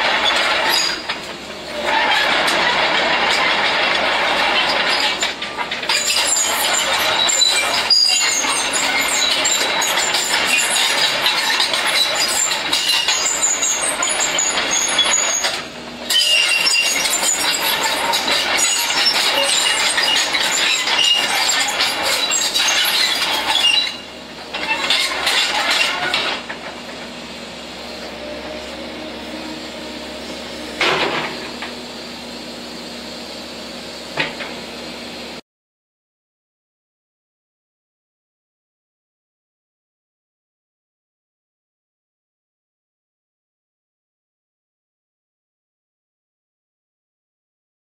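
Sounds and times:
excavator tracks clanking: 0:00.0 - 0:35.1
diesel engine running: 0:00.0 - 0:35.4.

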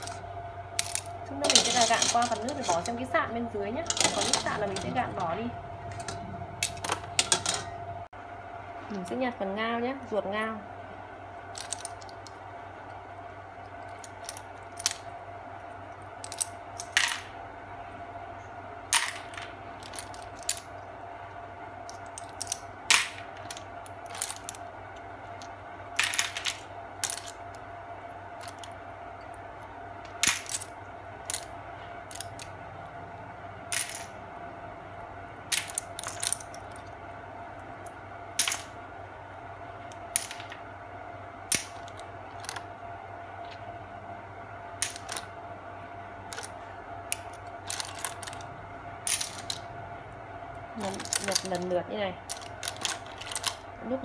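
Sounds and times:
faint hum: 0:00.0 - 0:54.0
clam shells clinking: 0:11.6 - 0:12.3.

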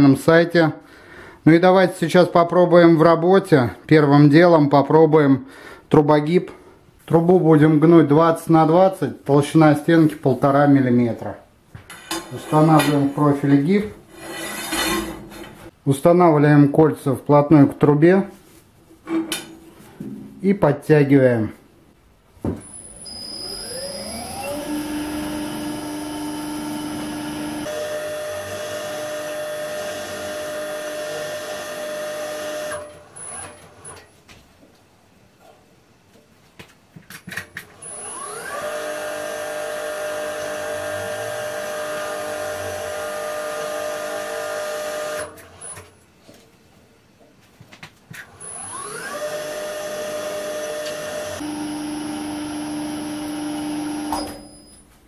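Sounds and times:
electric machine motor whining: 0:22.7 - 0:33.5, 0:37.8 - 0:45.4, 0:48.4 - 0:54.6.

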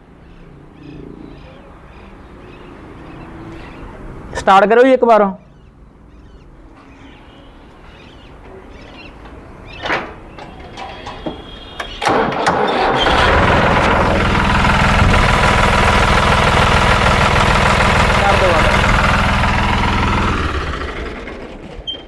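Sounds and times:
diesel tractor engine starting: 0:10.6 - 0:22.0
tractor engine idling: 0:11.4 - 0:22.0.

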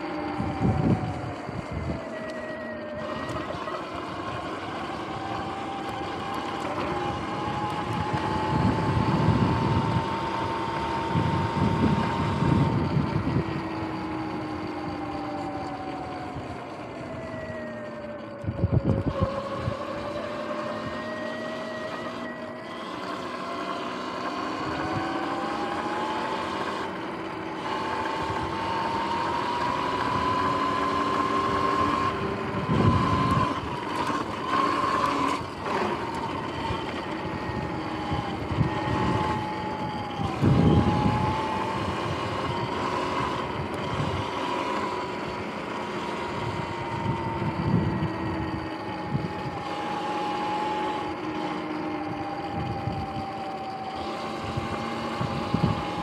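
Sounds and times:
electric dirt bike motor whining: 0:00.0 - 0:56.0
wind gusts on microphone: 0:00.3 - 0:02.2, 0:07.1 - 0:15.2, 0:16.1 - 0:20.1, 0:27.6 - 0:45.4, 0:46.1 - 0:56.0.

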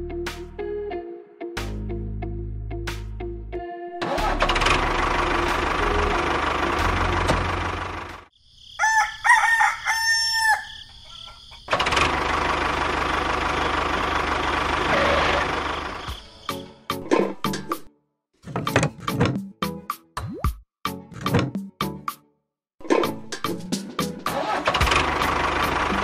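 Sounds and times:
rooster crowing: 0:08.6 - 0:11.4.

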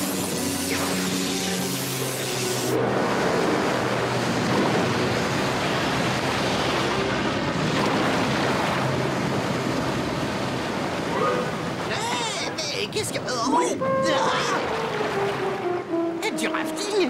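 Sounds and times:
water rushing down: 0:00.0 - 0:13.3, 0:14.1 - 0:16.1.

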